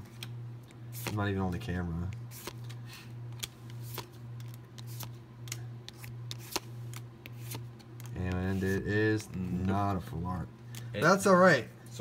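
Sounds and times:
low steady hum: 0.0s - 12.0s
cards flicking: 0.1s - 1.3s, 2.0s - 9.8s.

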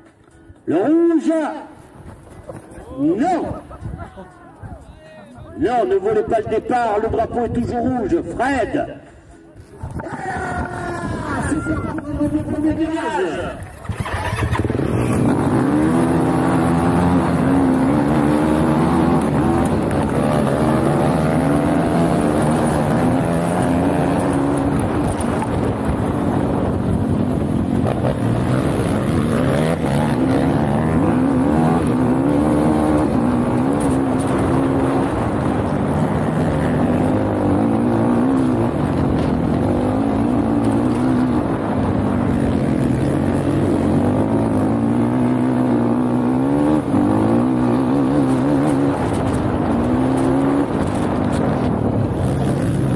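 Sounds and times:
quad engine revving: 13.8s - 52.9s.

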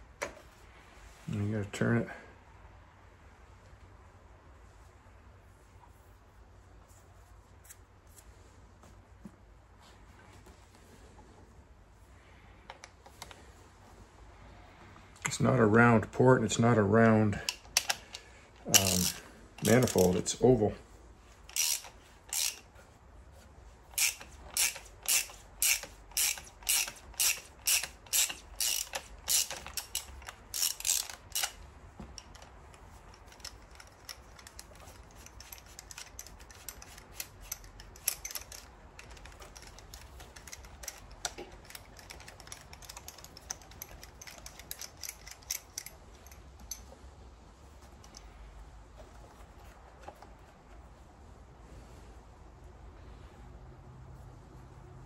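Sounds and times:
ratchet wrench clicking: 17.5s - 20.2s, 21.5s - 22.7s, 23.9s - 46.8s.

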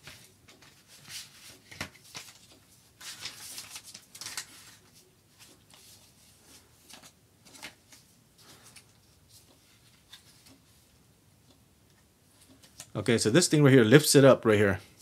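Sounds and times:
cardboard packaging rustling: 0.0s - 10.6s.

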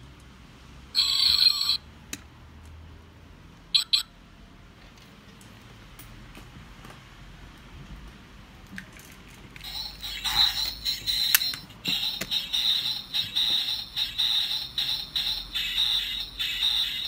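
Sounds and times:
high-pitched pulsing electronic tone: 1.0s - 1.8s.

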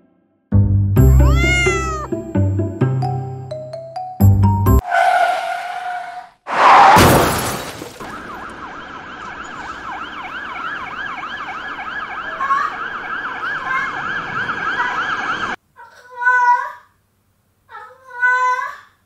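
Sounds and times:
vehicle collision crash: 4.9s - 8.7s
emergency siren wailing: 8.0s - 15.6s.

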